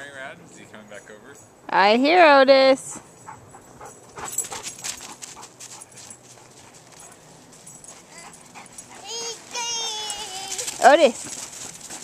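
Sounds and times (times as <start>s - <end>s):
dog panting: 2.8s - 12.0s.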